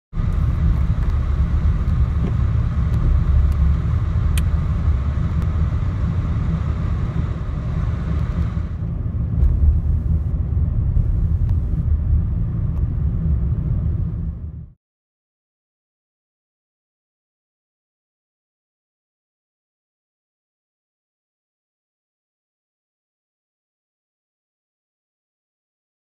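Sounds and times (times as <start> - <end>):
car engine: 0.1 - 14.8.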